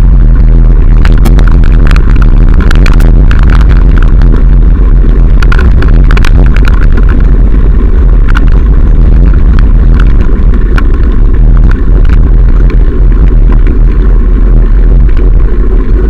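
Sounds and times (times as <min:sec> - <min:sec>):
heavy wind buffeting microphone: 0:00.0 - 0:16.0
camera clicks and rattles: 0:00.9 - 0:14.4.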